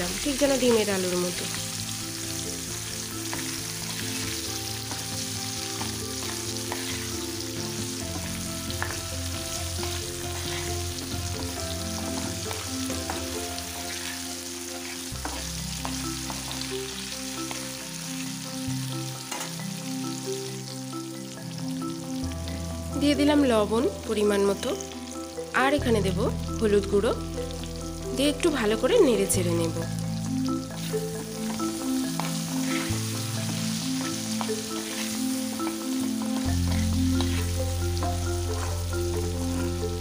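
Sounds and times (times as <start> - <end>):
potatoes sizzling in oil: 0.0 - 40.0
spatula scraping and clicking: 5.8 - 7.2.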